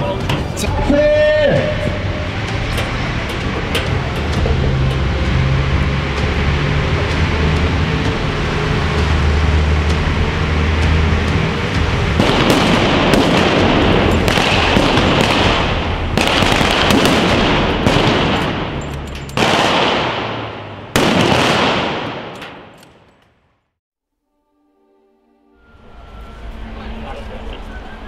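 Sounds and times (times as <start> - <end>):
loud gunfire bursts: 12.2 - 18.8, 19.4 - 22.8
gunfire crackle: 12.2 - 23.1.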